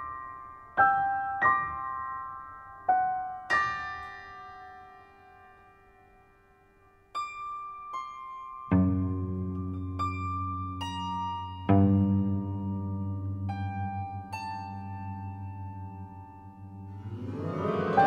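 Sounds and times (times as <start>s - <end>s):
high piano notes ringing: 16.9s - 18.0s.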